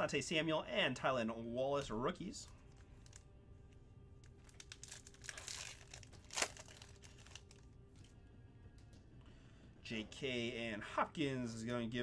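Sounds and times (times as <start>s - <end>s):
foil wrapper crinkling: 2.5s - 3.3s, 4.2s - 7.7s
foil ripping: 4.4s - 7.6s.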